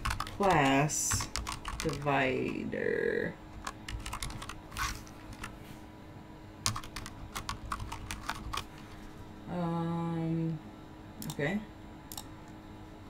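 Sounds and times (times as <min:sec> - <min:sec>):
keyboard typing: 0:00.0 - 0:02.6, 0:03.5 - 0:05.6, 0:06.6 - 0:08.8.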